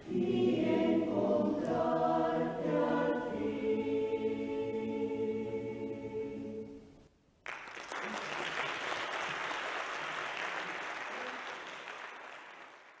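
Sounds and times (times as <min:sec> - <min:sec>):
choir singing held chord: 0:00.0 - 0:06.9
audience applauding: 0:07.4 - 0:13.0.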